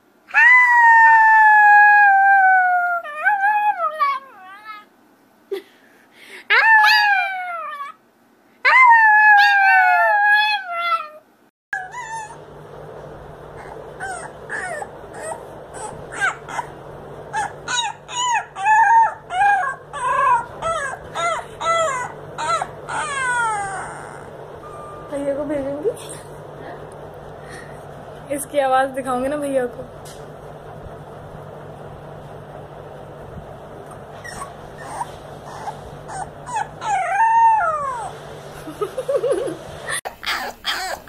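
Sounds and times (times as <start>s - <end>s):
dog howling: 0.3s - 4.9s, 6.5s - 8.0s, 8.6s - 12.4s, 13.6s - 24.5s, 34.2s - 38.2s, 40.2s - 41.0s
puppy yipping and whimpering: 6.5s - 8.0s, 11.8s - 12.4s, 13.6s - 24.9s, 34.2s - 38.2s, 40.1s - 41.0s
steady low hum: 11.8s - 41.0s.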